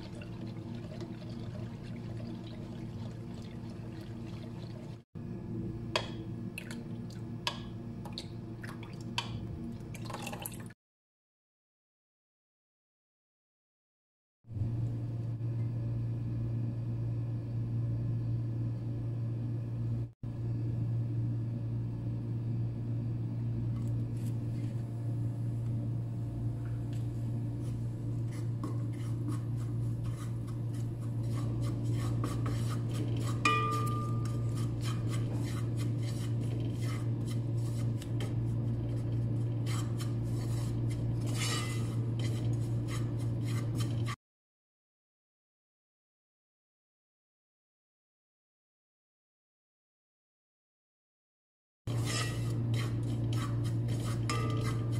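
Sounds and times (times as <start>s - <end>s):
steady low hum: 14.5s - 44.2s
wooden spatula scraping metal pan: 27.6s - 44.2s, 51.9s - 54.9s.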